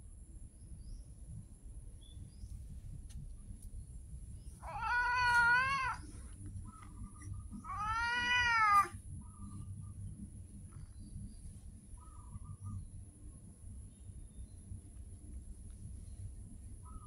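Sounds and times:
cat meowing: 4.6s - 6.1s, 7.5s - 9.0s.

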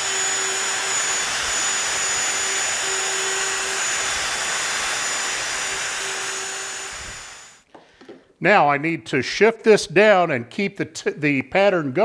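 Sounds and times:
router high-pitched whir: 0.0s - 7.6s.

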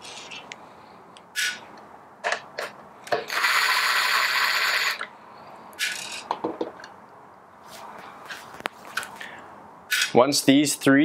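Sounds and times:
cordless drill whirring: 3.2s - 5.1s.

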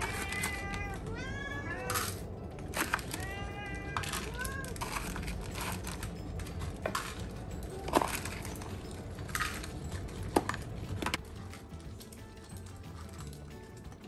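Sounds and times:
dry kibble clicking into bowls: 0.0s - 1.2s, 1.8s - 14.0s.

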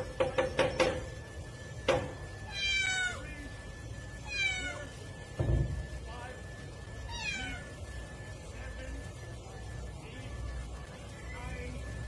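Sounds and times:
cat meowing: 2.5s - 3.3s, 4.2s - 5.0s, 7.1s - 7.8s
low thump: 5.4s - 5.8s.

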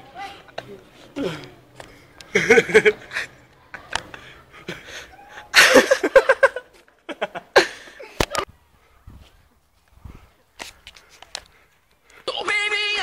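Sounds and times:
people laughing: 1.2s - 8.5s
panting breaths: 10.0s - 12.3s.

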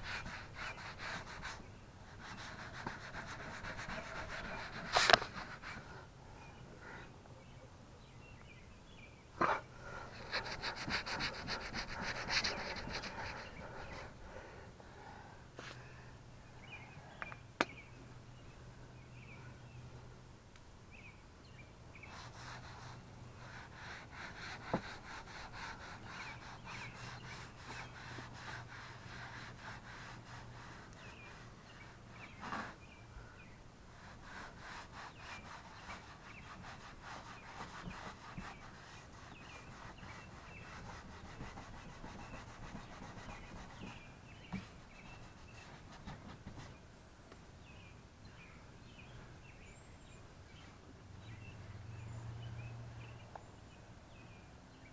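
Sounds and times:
cloth rubbing plastic trim: 2.2s - 5.8s.

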